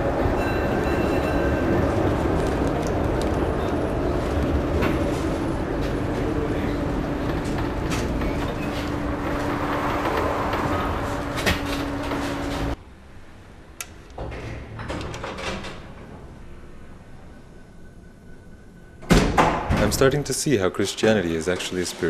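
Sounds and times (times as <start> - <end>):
tram rumble and hum: 0.0 - 22.0
lift doors clicking and knocking: 14.1 - 16.4.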